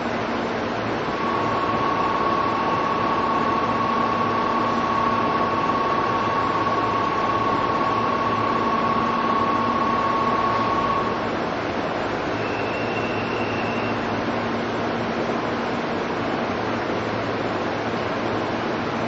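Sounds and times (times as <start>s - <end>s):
low hum: 0.9s - 11.4s
steady high tone: 1.1s - 11.4s.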